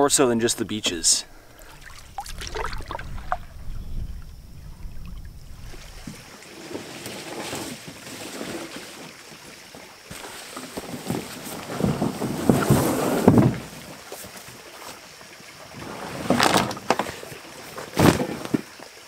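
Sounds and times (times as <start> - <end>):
canoe hull scraping ground: 4.9 - 15.0, 15.7 - 18.7.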